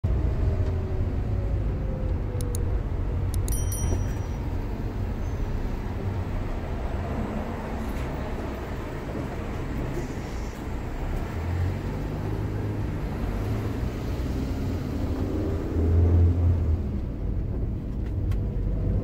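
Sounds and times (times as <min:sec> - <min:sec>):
engine and road noise inside cab: 0:00.1 - 0:19.0.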